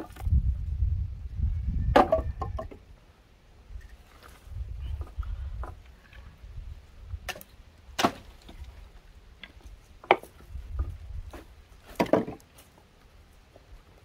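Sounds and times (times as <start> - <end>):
wooden planks knocking and clattering: 0.0 - 0.3, 1.9 - 2.8, 9.4 - 12.7.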